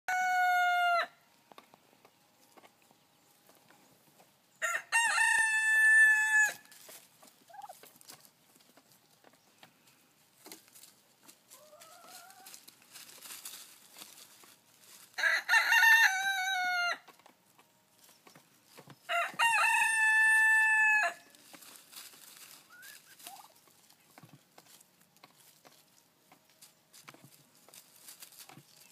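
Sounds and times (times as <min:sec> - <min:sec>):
rooster crowing: 0:00.1 - 0:01.2, 0:04.6 - 0:06.6, 0:15.2 - 0:17.0, 0:19.1 - 0:21.3.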